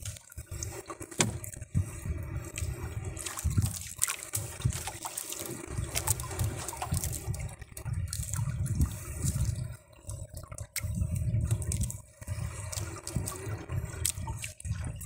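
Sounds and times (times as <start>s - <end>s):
water splashes and slaps: 0.0s - 1.9s, 2.5s - 15.0s
water streaming and dripping: 0.0s - 15.0s
wet net being hauled: 1.0s - 1.6s, 2.6s - 8.4s.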